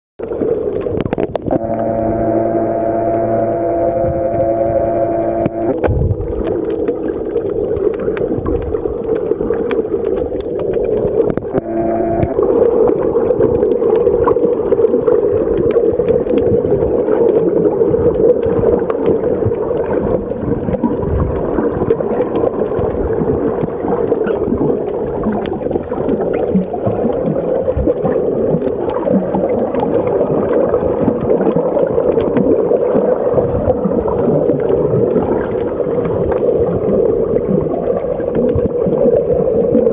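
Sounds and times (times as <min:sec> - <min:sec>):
faint crackling clicks: 0:00.2 - 0:39.9
muffled underwater rush: 0:00.2 - 0:39.9
humming tone: 0:01.3 - 0:06.8, 0:11.4 - 0:13.6.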